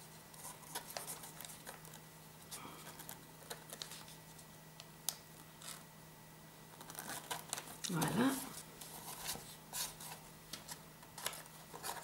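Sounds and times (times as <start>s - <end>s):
paper and cardboard handled: 0.0s - 2.0s, 6.8s - 12.0s.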